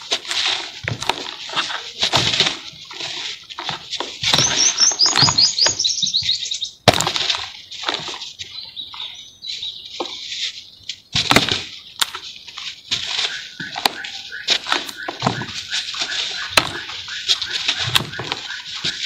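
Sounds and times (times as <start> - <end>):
hands crumbling dry cement lumps: 0.0 - 5.4
bird twittering: 4.3 - 6.8, 8.4 - 11.0, 13.1 - 19.0.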